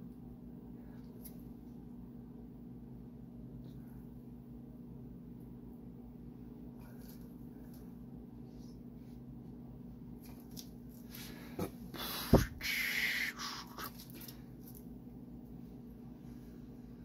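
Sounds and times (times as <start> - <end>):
steady low hum: 0.0 - 17.0
breathy puff of air: 11.4 - 13.9.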